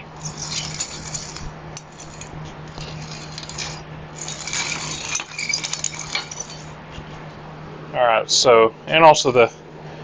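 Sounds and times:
bike bearings crunching and grinding: 0.0 - 7.1.

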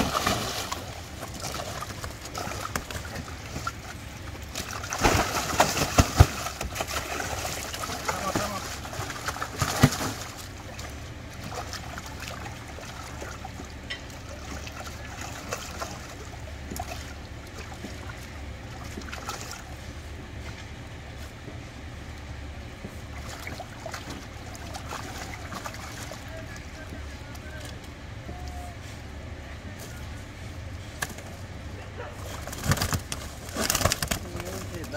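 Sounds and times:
fish splashing in water: 0.0 - 20.5, 22.8 - 28.8, 32.2 - 34.9.

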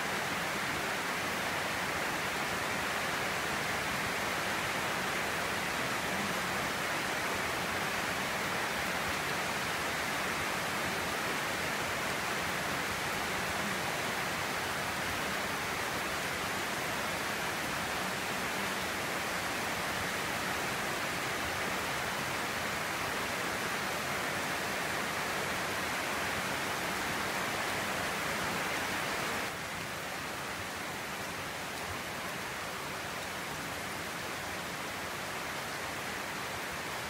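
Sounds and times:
rain on a roof: 0.0 - 37.0.

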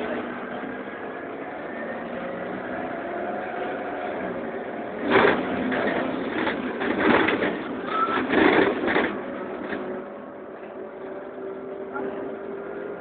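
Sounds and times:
bus engine running: 0.0 - 13.0
brief squeal: 7.8 - 8.4.

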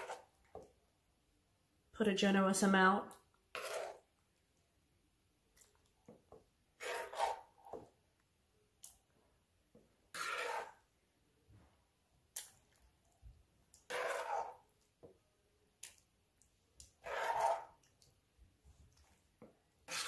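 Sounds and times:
metal spoon scraping a pan: 0.0 - 0.3, 3.5 - 4.1, 6.8 - 7.8, 10.1 - 10.9, 13.7 - 14.7, 17.0 - 17.9.

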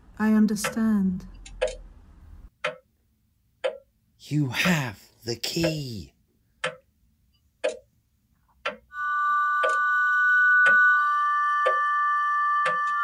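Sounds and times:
clock ticking: 0.2 - 3.0, 3.6 - 8.9, 9.6 - 9.8, 10.6 - 10.9, 11.6 - 12.0, 12.6 - 13.0.

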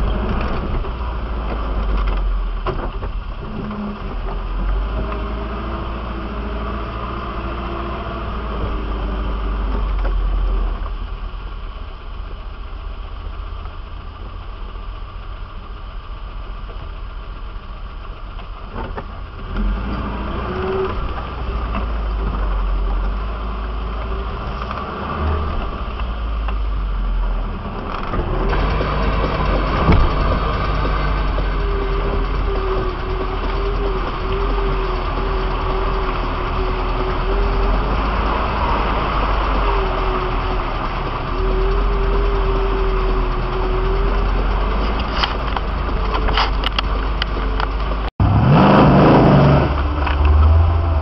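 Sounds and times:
off-road vehicle engine revving: 0.0 - 11.3, 18.7 - 51.0.

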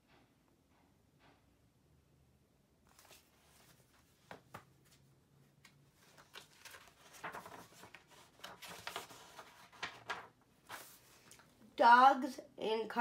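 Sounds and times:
paper rustling: 2.9 - 11.5.

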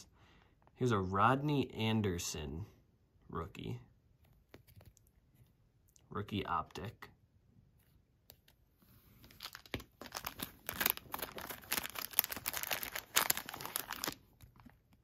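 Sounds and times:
plastic bag crinkling: 9.2 - 15.0.

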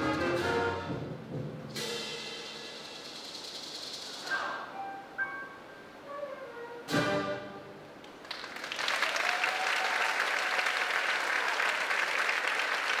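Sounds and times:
percussion hit: 0.0 - 4.4
audience applause: 8.2 - 13.0.

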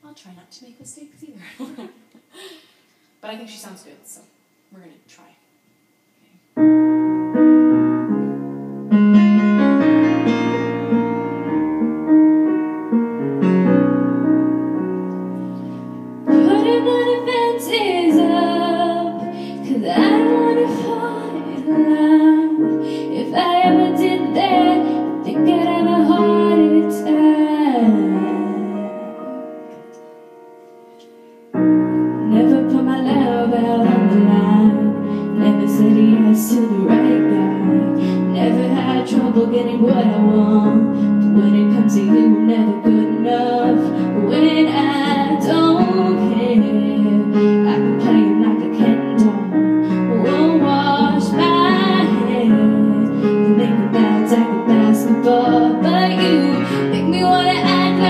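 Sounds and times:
piano chords: 6.6 - 58.0
girl singing: 16.3 - 29.6, 32.2 - 58.0.

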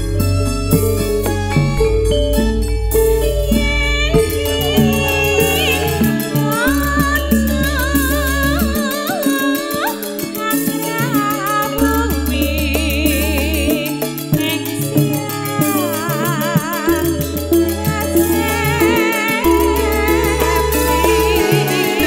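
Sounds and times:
deep bass notes: 0.0 - 9.0, 11.8 - 22.0
steady drum beat: 0.0 - 9.0
woman singing with vibrato: 2.9 - 22.0.

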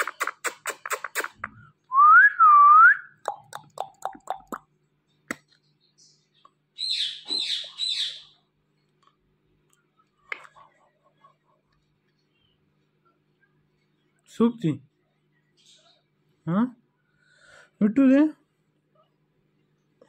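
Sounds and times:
smacking kisses: 0.0 - 1.6, 3.2 - 4.6
parrot soft chirps: 6.3 - 8.4
parrot harsh calls: 6.8 - 8.4.

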